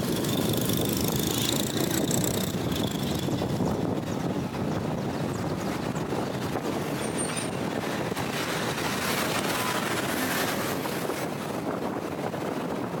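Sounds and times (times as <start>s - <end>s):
car tyre and road noise: 0.0s - 13.0s
wind rushing over microphone: 0.0s - 13.0s.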